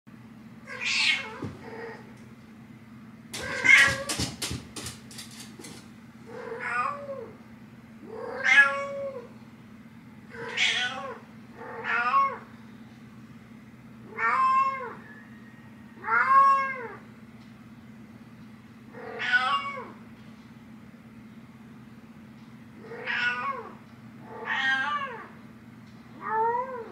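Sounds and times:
cat meowing: 0:00.7 - 0:02.0, 0:03.4 - 0:04.2, 0:10.4 - 0:12.4, 0:16.0 - 0:17.0, 0:19.0 - 0:20.0, 0:22.9 - 0:25.4.

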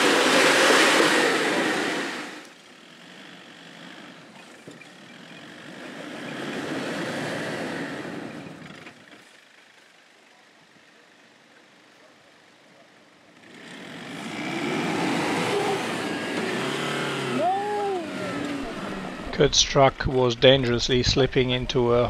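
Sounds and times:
engine revving under load: 0:00.0 - 0:09.0, 0:13.4 - 0:21.3.

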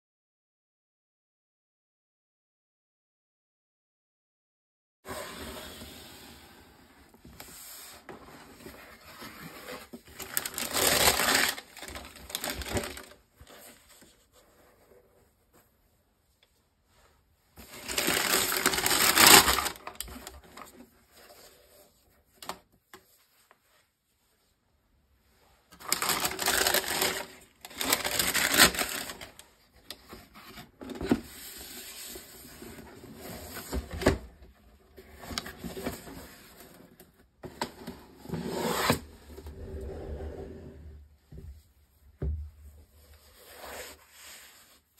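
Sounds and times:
cardboard box rustling and scraping: 0:05.1 - 0:15.2, 0:25.9 - 0:29.2.

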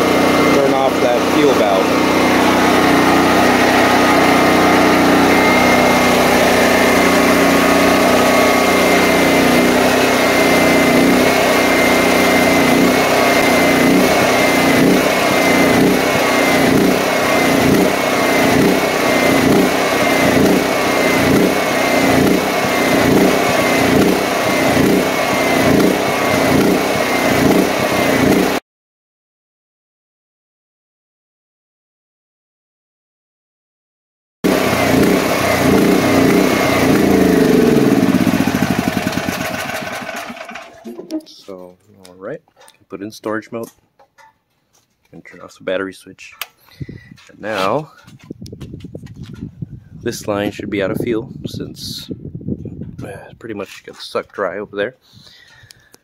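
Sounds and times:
generator engine surging: 0:00.0 - 0:28.6, 0:34.4 - 0:41.3.

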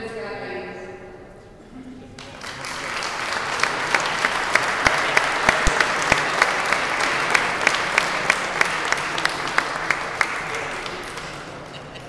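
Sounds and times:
audience applauding: 0:02.2 - 0:12.0
loud claps close by: 0:02.2 - 0:12.0.

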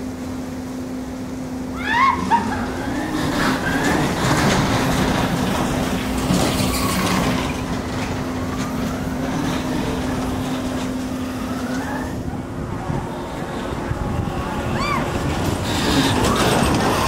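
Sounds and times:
rush of wind: 0:00.0 - 0:17.0
steady hum: 0:00.0 - 0:17.0.

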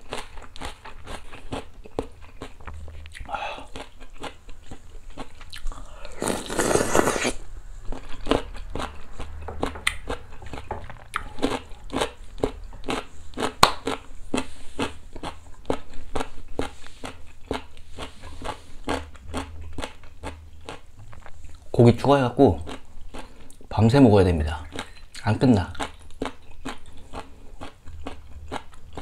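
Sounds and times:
wet chewing: 0:00.0 - 0:21.7, 0:24.6 - 0:29.0
slurping noodles: 0:06.1 - 0:07.4.

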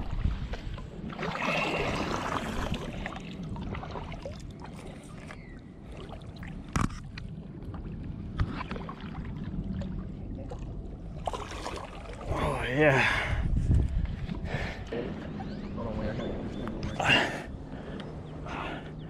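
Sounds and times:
water splashing in shallows: 0:00.0 - 0:12.8.

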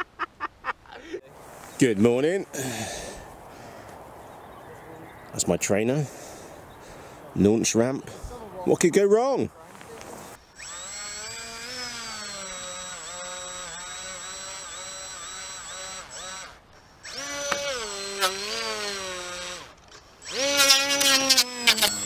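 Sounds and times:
electric motor and propeller whine: 0:10.1 - 0:22.0.

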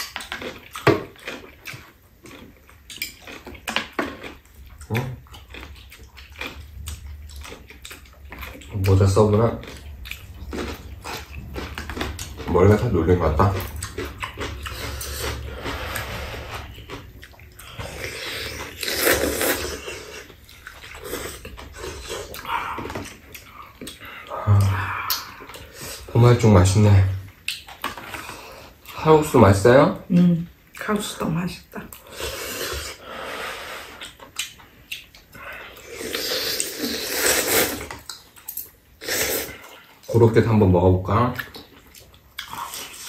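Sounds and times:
chewing: 0:00.0 - 0:29.3, 0:33.6 - 0:40.3, 0:41.3 - 0:43.0
noodle slurping: 0:13.4 - 0:26.1, 0:35.7 - 0:38.1.

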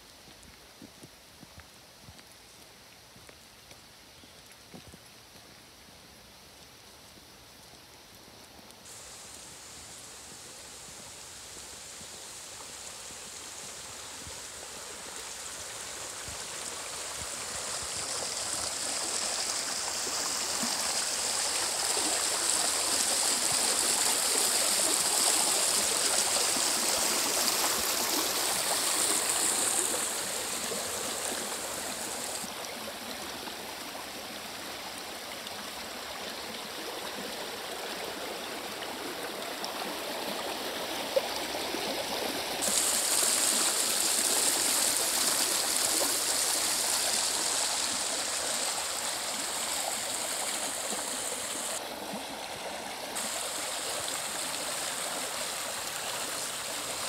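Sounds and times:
stream running over stones: 0:00.0 - 0:57.0.

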